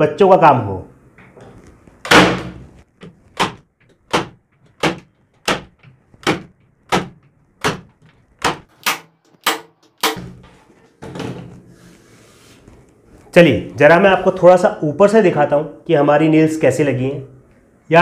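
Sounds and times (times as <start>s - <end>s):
nail gun firing into plywood: 2.1s - 2.6s, 3.4s - 10.4s.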